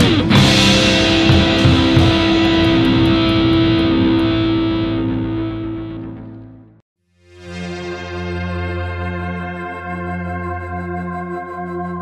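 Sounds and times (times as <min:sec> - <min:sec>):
cymbals ringing: 0:00.0 - 0:05.7
rock band chord ringing: 0:00.0 - 0:06.8.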